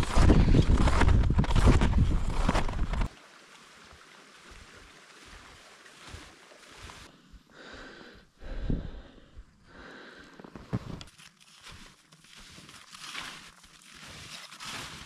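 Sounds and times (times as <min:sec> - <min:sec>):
footsteps in snow: 0:00.0 - 0:03.1, 0:10.4 - 0:15.0.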